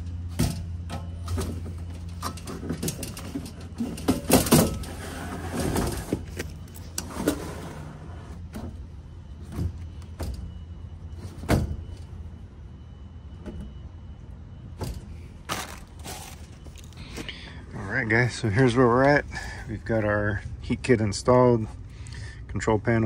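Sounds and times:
steady low hum: 0.0s - 23.0s
sheet metal clattering and scraping: 0.3s - 8.8s.

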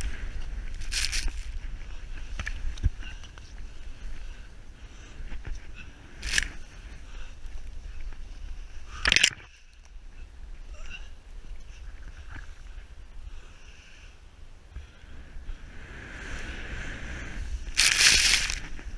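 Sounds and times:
snow and branches scraping camera: 0.0s - 2.7s, 5.2s - 7.0s, 15.8s - 18.9s
wind on microphone: 0.0s - 13.6s, 14.4s - 18.9s.

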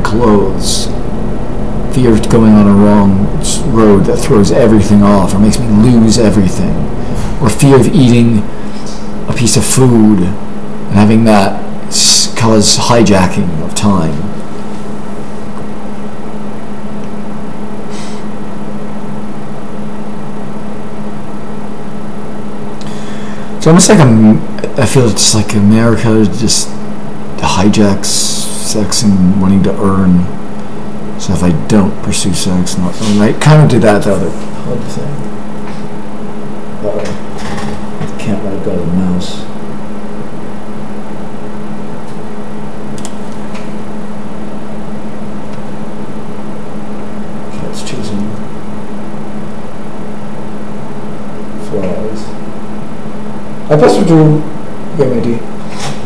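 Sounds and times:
low hum: 0.0s - 11.9s
constant hiss: 0.0s - 15.5s, 22.8s - 35.9s, 47.5s - 48.5s
steady low hum: 0.0s - 56.0s.

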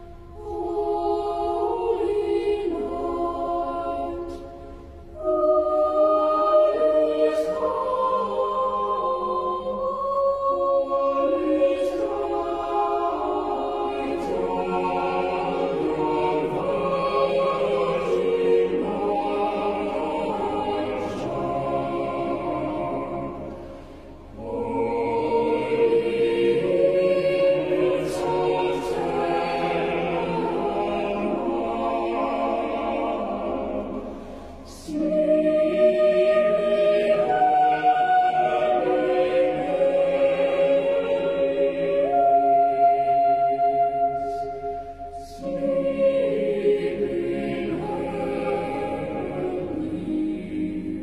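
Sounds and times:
choir singing long chords: 0.0s - 51.0s.

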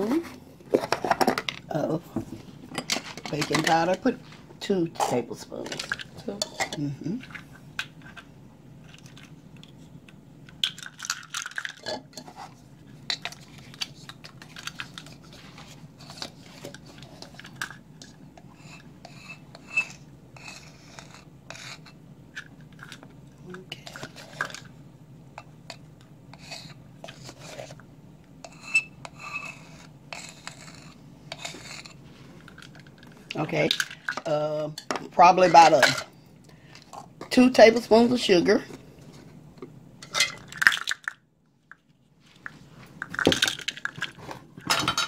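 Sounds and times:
whisk scraping ceramic bowl: 18.4s - 22.0s, 26.3s - 27.8s, 28.4s - 32.0s.

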